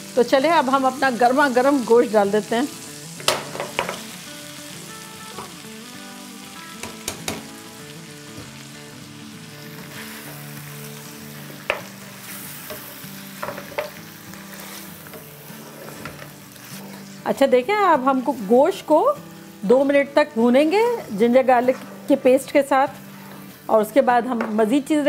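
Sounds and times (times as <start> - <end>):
meat sizzling in hot oil: 0.0 - 24.1
utensils knocking against pan: 3.2 - 4.1, 6.8 - 7.5, 11.6 - 12.0, 12.7 - 14.0.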